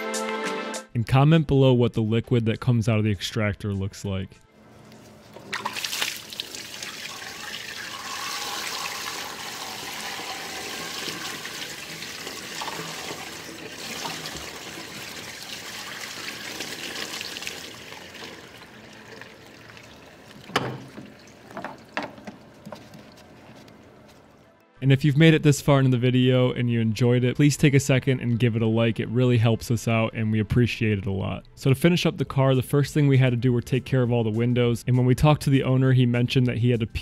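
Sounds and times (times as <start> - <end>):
water pouring into a drain: 5.4 - 22.7.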